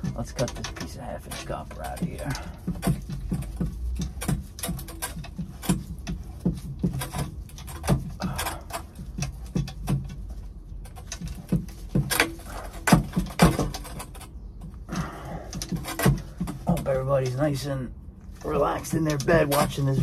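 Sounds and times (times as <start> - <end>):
pipe cutter clicking and scraping: 0.0 - 17.6, 18.4 - 20.0.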